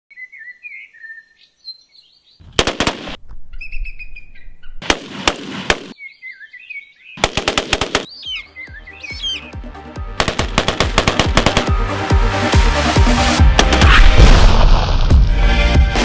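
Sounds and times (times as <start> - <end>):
birds singing: 0.1 - 2.5, 3.5 - 4.8, 5.9 - 7.3, 7.9 - 9.8
rifle firing rapidly: 2.6 - 3.2, 7.2 - 8.1, 10.2 - 11.8.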